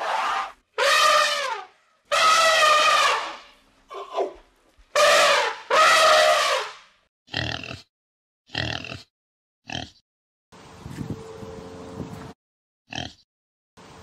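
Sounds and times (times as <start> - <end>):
elephant trumpeting: 0.0 - 4.3, 5.0 - 6.8
pig grunting: 7.3 - 7.9, 8.5 - 9.1.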